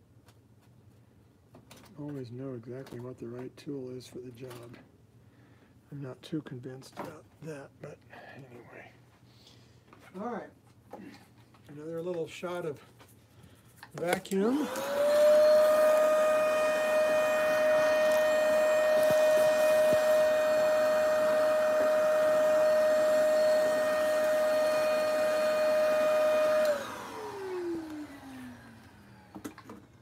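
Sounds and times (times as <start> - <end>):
vacuum cleaner running: 14.0 - 29.9
motor winding down: 14.3 - 29.6.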